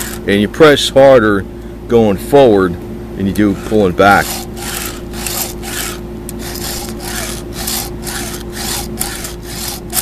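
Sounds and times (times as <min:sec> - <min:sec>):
file rasping on chainsaw chain: 0:00.0 - 0:00.3, 0:03.4 - 0:10.0.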